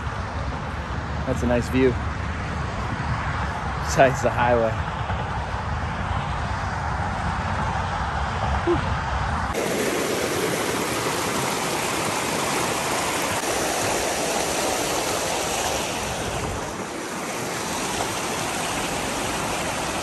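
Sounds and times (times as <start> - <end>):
stream rushing over rocks: 9.5 - 20.0.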